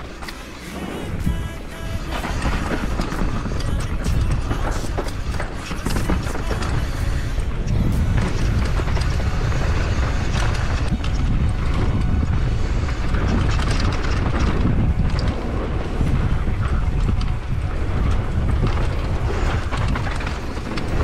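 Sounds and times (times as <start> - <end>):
low rumble: 0.0 - 21.0.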